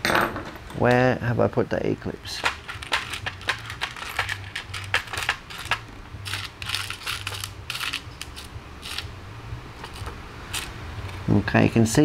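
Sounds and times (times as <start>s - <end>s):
metal hardware rattling in plastic tray: 2.4s - 8.0s.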